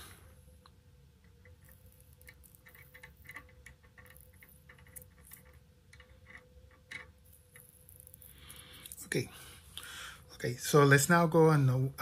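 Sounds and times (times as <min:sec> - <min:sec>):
faint steady hum: 0:00.0 - 0:12.0
solder ticking and crackling: 0:00.6 - 0:09.1.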